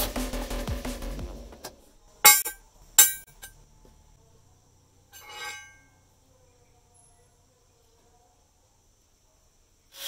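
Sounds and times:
metal scrape with faint ring: 0:05.2 - 0:06.0.

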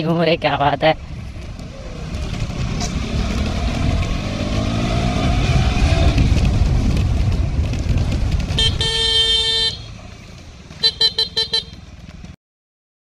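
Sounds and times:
motorcycle engine and wind: 0:00.0 - 0:12.4
horn toots: 0:08.5 - 0:10.0, 0:10.8 - 0:11.8.

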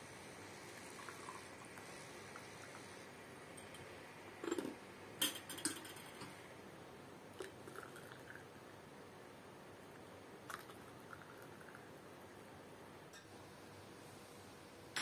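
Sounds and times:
kettle pouring into glass: 0:00.7 - 0:02.8, 0:07.4 - 0:08.5, 0:10.5 - 0:11.8.

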